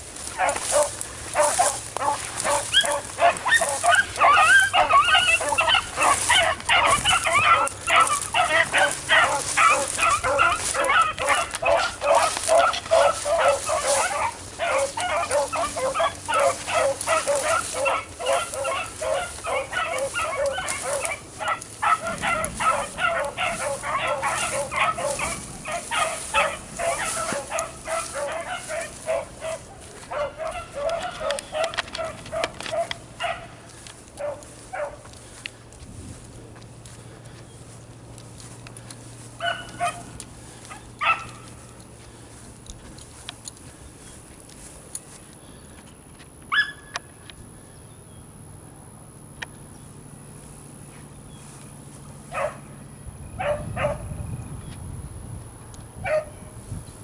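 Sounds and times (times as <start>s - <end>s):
beagles baying and yelping: 0.0s - 54.6s, 55.9s - 56.6s.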